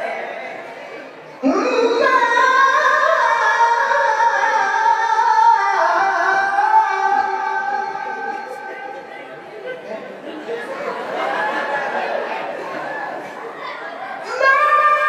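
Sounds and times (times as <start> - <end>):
man singing into a microphone: 1.4 - 9.1.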